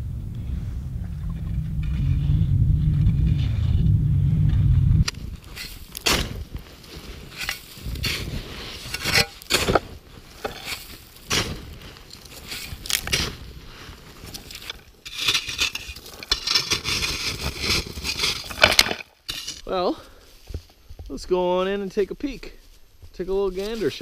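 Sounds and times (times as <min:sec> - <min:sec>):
loose snow spilling: 0:05.2 - 0:18.6
shovel scraping packed snow: 0:05.2 - 0:18.7.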